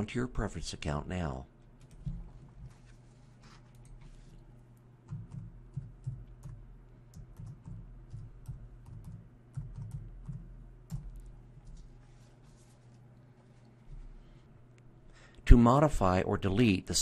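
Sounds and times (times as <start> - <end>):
keyboard typing: 1.8 - 2.5, 3.6 - 4.2, 5.0 - 12.0.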